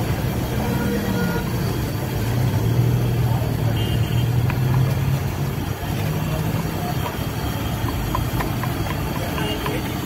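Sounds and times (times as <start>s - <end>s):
oil popping: 2.0s - 10.0s.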